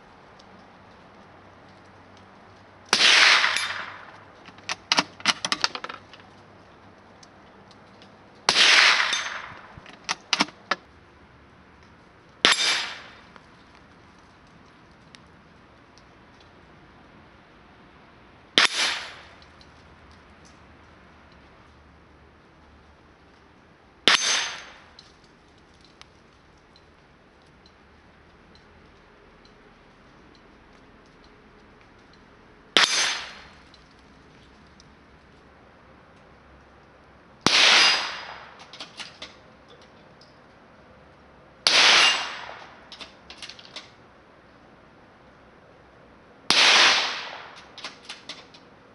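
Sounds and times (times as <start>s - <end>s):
rifle shots with echo: 2.9s - 4.2s, 8.5s - 9.7s, 12.4s - 13.2s, 18.6s - 19.3s, 37.4s - 38.6s, 41.7s - 42.8s, 46.5s - 47.6s
steel target metallic ring: 8.6s - 9.5s, 12.5s - 13.2s, 24.1s - 24.9s, 32.8s - 33.5s, 37.7s - 38.3s, 41.7s - 42.6s
rifle bolt metallic clicks: 8.7s - 10.8s.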